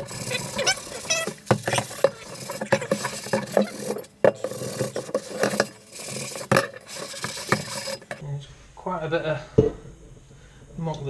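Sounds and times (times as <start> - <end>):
scourer scrubbing cast iron skillet: 0.0 - 8.2.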